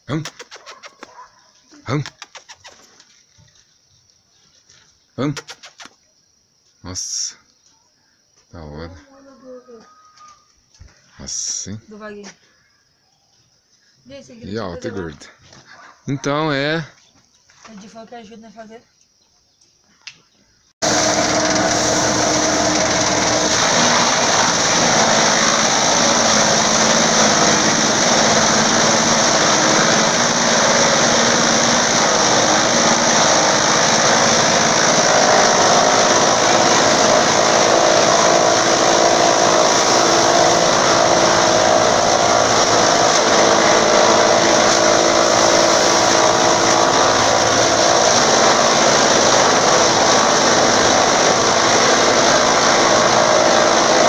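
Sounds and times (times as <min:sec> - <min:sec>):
forage chopper running: 0:20.8 - 0:54.0
grass stalks being cut: 0:20.8 - 0:54.0.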